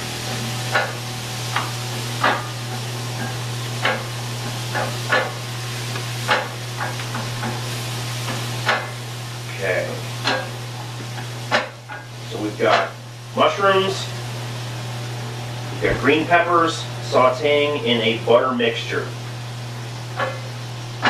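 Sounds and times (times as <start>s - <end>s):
vegetables sizzling in butter: 0.0s - 21.0s.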